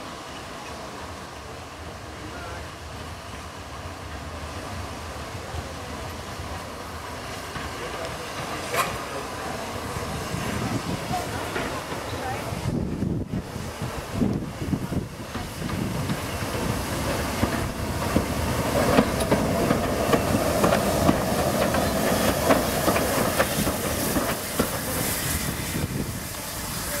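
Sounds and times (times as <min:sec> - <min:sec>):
steam hissing: 0:00.0 - 0:27.0
train wheels clicking on rail joints: 0:07.2 - 0:27.0.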